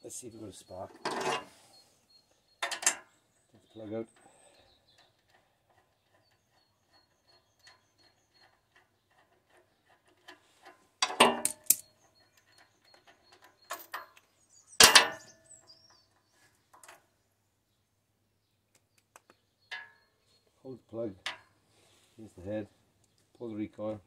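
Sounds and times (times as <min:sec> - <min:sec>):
metal clanks with ringing: 0:14.8 - 0:15.5.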